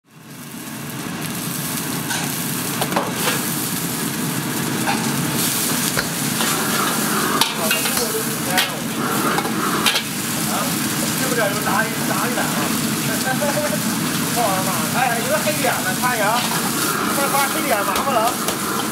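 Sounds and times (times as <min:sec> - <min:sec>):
gas burner roaring: 0:00.0 - 0:18.9
vegetables sizzling in wok: 0:00.1 - 0:18.9
brush and ladle scraping wok: 0:04.8 - 0:11.0, 0:15.1 - 0:18.9.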